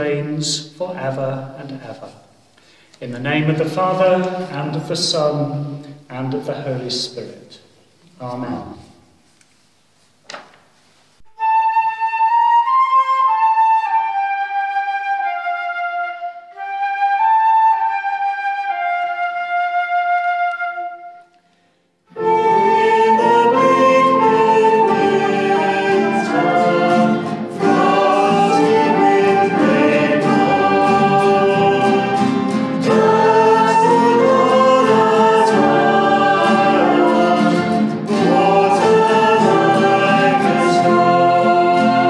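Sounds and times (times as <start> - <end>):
solo flute melody: 11.2 - 42.0
acoustic guitars: 22.1 - 42.0
trumpet: 22.1 - 42.0.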